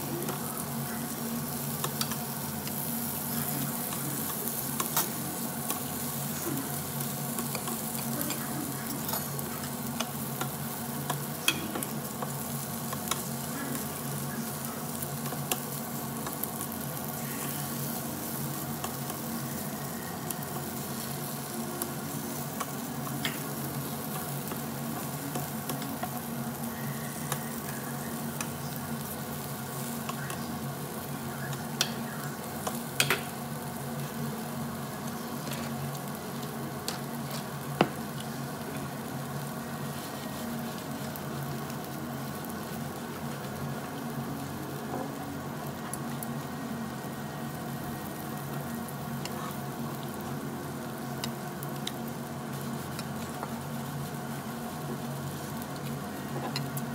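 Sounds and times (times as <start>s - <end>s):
meat sizzling on a grill: 0.0s - 56.9s.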